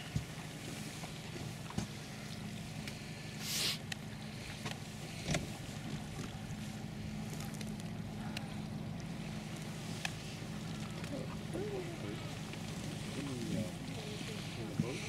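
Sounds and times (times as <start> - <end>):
outboard motor humming: 0.0 - 15.0
brief hiss: 3.4 - 3.8.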